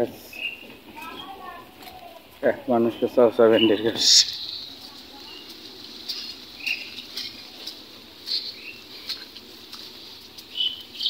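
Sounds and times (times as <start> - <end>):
small birds chirping: 0.0 - 11.0.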